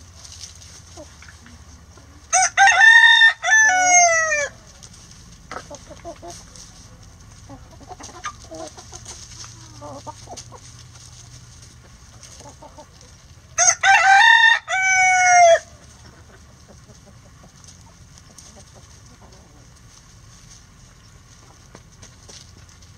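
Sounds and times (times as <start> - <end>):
hens clucking softly: 0.0 - 2.4, 3.8 - 13.6, 15.2 - 22.9
rooster crowing: 2.3 - 4.6, 13.6 - 15.7.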